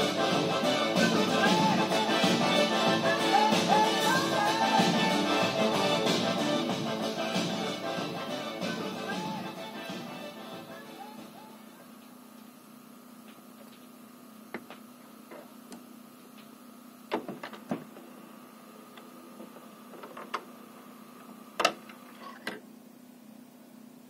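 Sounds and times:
faint hum: 0:00.0 - 0:24.0.

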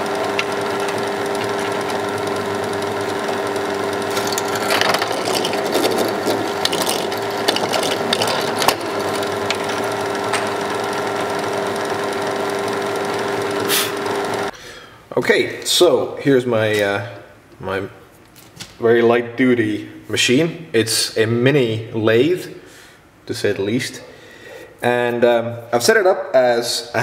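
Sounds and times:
drill bit cutting plastic: 0:00.0 - 0:14.5
drill press motor hum: 0:00.0 - 0:14.5.

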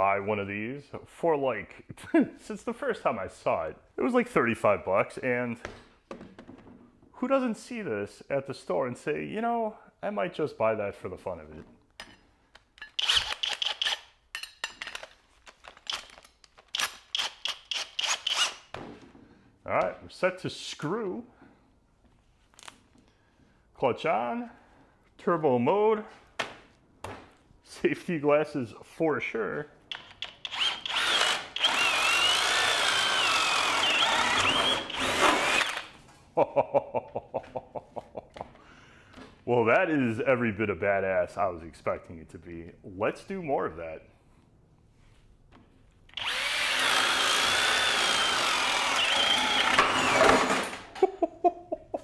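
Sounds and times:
hammer drill boring into wood: 0:12.8 - 0:14.2, 0:15.8 - 0:18.7, 0:29.9 - 0:36.0, 0:46.1 - 0:51.0.

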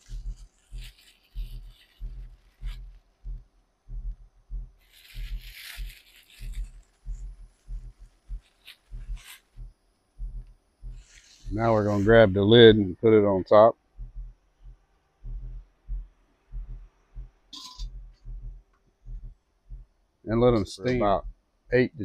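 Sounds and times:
plastic bag crinkling: 0:00.0 - 0:02.9, 0:04.8 - 0:09.6
low irregular thumping: 0:00.0 - 0:22.0.

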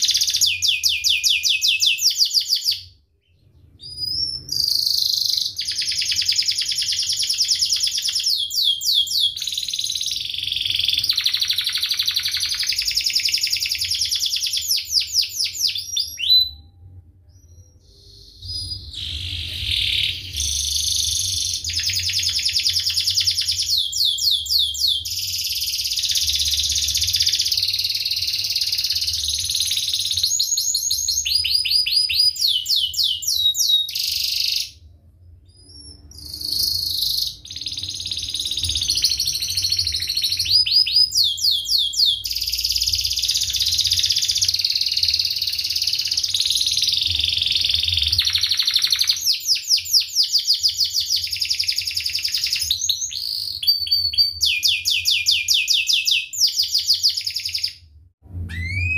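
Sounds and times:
canary singing trills: 0:00.0 - 0:57.8, 0:58.5 - 0:58.9.

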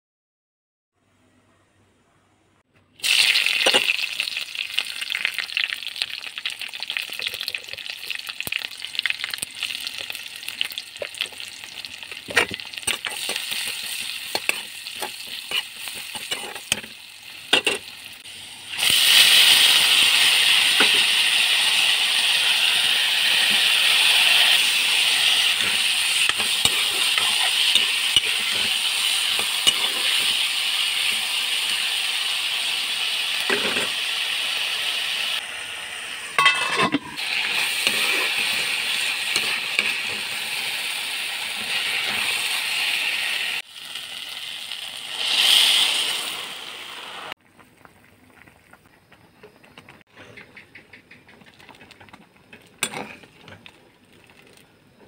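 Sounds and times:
food sizzling in hot oil: 0:03.0 - 0:50.0
metal ladle scraping a wok: 0:12.2 - 0:18.0, 0:22.4 - 0:31.2, 0:33.5 - 0:34.0, 0:36.4 - 0:40.8, 0:51.7 - 0:53.7.

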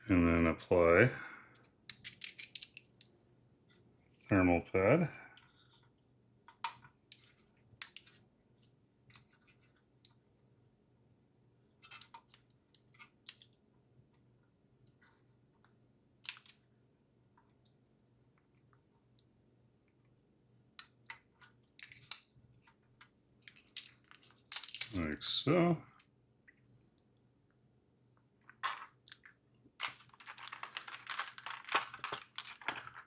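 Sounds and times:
small clicks and crinkles from handling: 0:01.5 - 0:04.2, 0:05.2 - 0:10.2, 0:11.8 - 0:13.9, 0:14.8 - 0:16.6, 0:20.8 - 0:25.0, 0:28.4 - 0:33.0.

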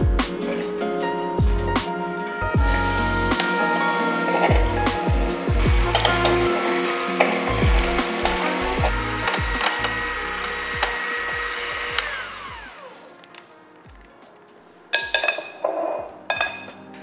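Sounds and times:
background music with beat: 0:00.0 - 0:17.0
electric hand mixer whine: 0:02.6 - 0:13.2.

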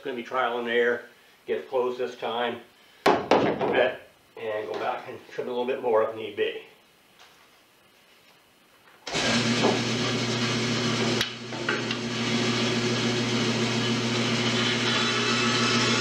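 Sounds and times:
band saw cutting wood: 0:09.1 - 0:16.0
band saw motor humming: 0:09.1 - 0:16.0.

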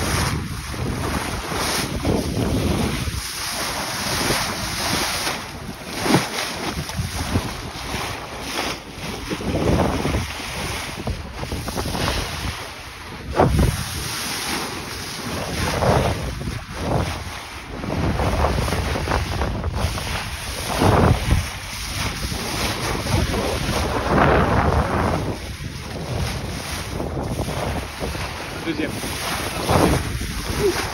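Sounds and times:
water splashing along boat bow: 0:00.0 - 0:30.9
wind buffeting microphone: 0:00.0 - 0:30.9.

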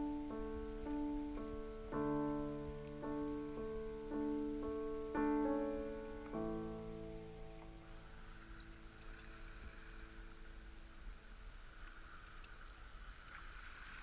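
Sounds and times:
slow solo piano piece: 0:00.0 - 0:10.9.

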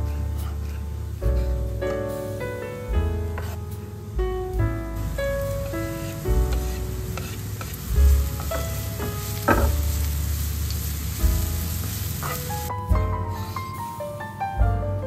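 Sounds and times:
vegetables sizzling in a hot pan: 0:05.0 - 0:12.7.

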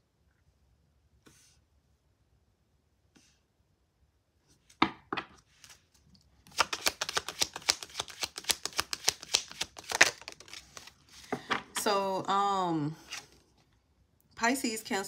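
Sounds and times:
cards shuffling and riffling: 0:05.4 - 0:11.4.

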